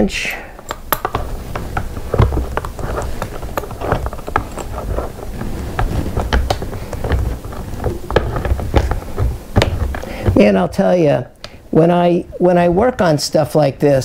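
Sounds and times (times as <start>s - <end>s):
handling noise rumble: 0.0s - 11.0s
wrench metallic clicks and knocks: 0.3s - 9.0s.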